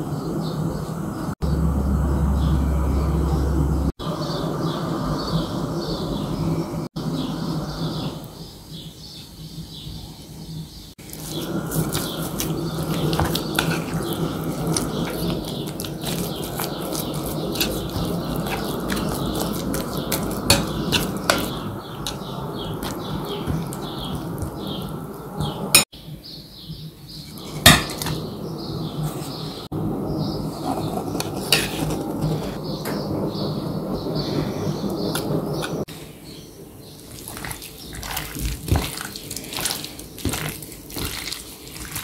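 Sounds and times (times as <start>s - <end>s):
food stirred in a bowl: 11.0s - 25.8s, 36.9s - 42.0s
utensil clinking against bowl: 11.3s - 25.6s.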